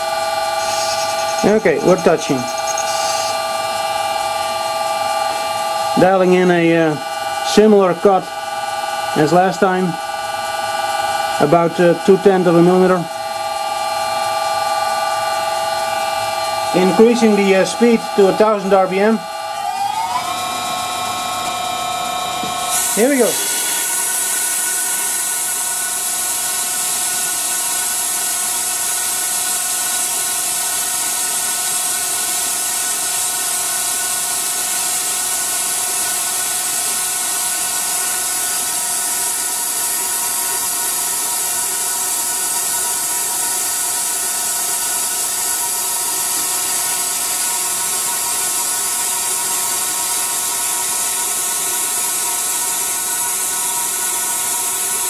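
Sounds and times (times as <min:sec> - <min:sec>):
lathe whining: 0:00.0 - 0:04.4, 0:19.3 - 0:27.6.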